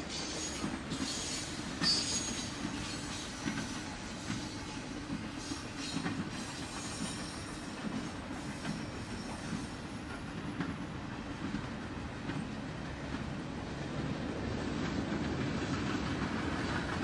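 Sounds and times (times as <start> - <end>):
steel wheels rumbling on rail: 0.0 - 17.0.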